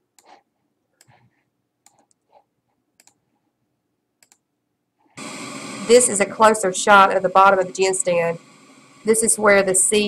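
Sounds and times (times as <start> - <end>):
computer mouse clicks: 0.1 - 0.4, 1.0 - 2.4, 3.0 - 3.2, 4.2 - 4.5.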